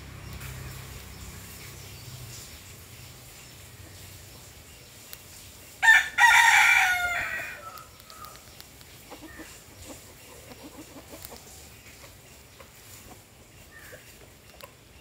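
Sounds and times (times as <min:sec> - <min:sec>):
rooster crowing: 0:05.8 - 0:07.9.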